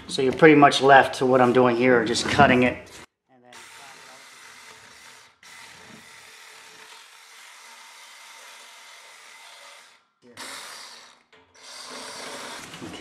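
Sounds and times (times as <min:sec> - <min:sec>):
power saw cutting metal: 0:03.6 - 0:13.0.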